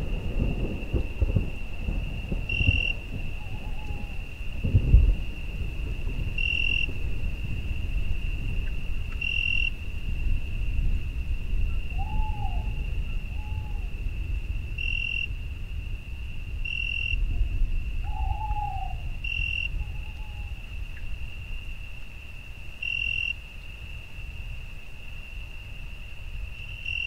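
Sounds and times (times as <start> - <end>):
crickets trilling: 0.0 - 27.0
owl hooting: 11.9 - 13.9, 18.1 - 19.1.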